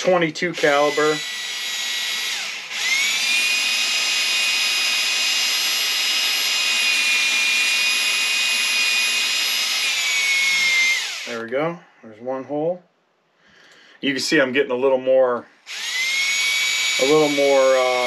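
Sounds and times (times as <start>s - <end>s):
cordless drill motor whine: 0.6s - 11.4s, 15.7s - 18.0s.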